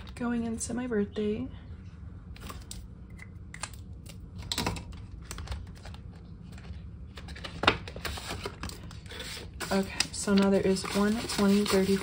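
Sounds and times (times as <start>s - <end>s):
pages being handled and turned: 5.0s - 12.0s.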